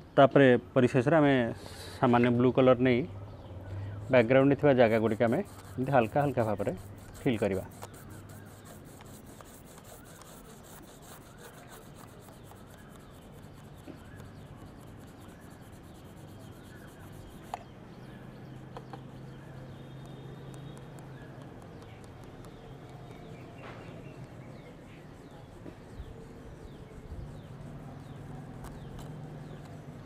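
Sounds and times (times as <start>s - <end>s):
crayon rubbing on paper: 4.1s - 17.6s, 24.6s - 30.0s.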